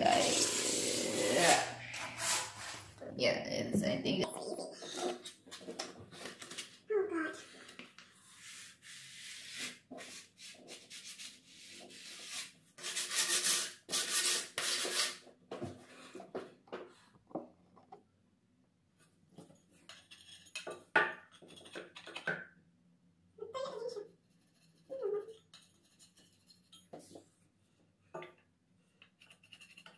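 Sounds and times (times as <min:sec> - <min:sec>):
sandpaper rubbing on wood: 0:08.4 - 0:15.2.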